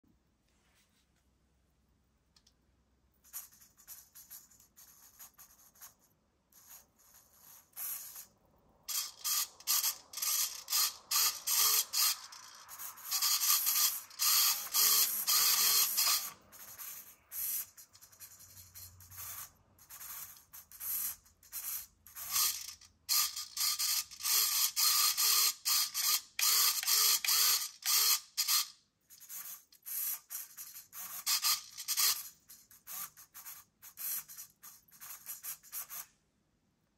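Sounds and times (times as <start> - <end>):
servo motors whirring: 8.9 - 18.1.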